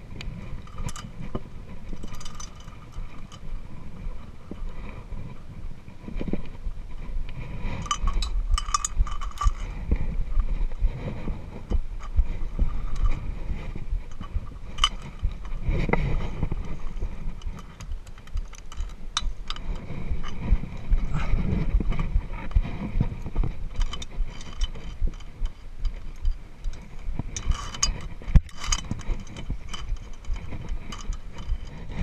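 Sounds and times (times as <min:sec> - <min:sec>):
microphone handling noise: 0:00.0 - 0:32.0
wind rumble on microphone: 0:00.0 - 0:32.0
carabiners clinking on steel cable: 0:00.2 - 0:05.4, 0:07.4 - 0:10.4, 0:11.2 - 0:32.0.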